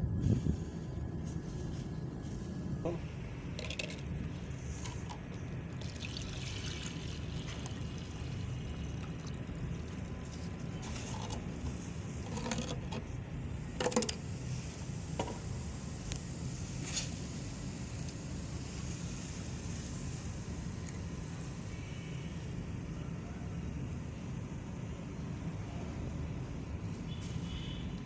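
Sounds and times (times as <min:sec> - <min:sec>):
steady low hum: 0:00.0 - 0:26.8
liquid pouring into plastic bottle: 0:03.6 - 0:11.5.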